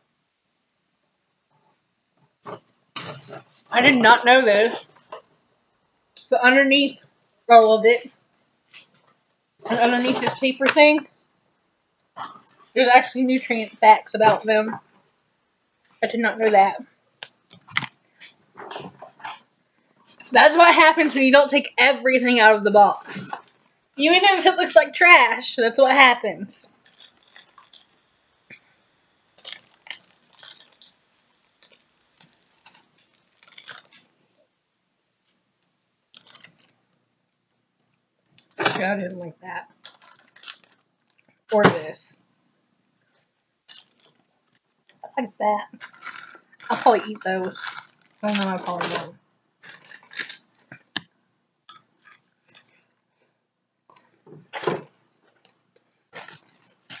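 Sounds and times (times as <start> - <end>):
small handling sounds: 15.8 - 20.4, 26.6 - 34.5, 35.2 - 45.0, 45.6 - 53.3, 53.9 - 57.0
wrappers crinkling and rustling: 26.6 - 34.4, 36.1 - 39.0, 39.6 - 41.5, 43.1 - 45.0, 45.7 - 51.1, 54.0 - 57.0
person chewing crunchy snack: 26.8 - 28.6, 29.4 - 34.0, 36.2 - 36.9, 39.8 - 40.8, 43.7 - 44.2, 45.8 - 46.9, 47.5 - 48.6, 56.2 - 57.0.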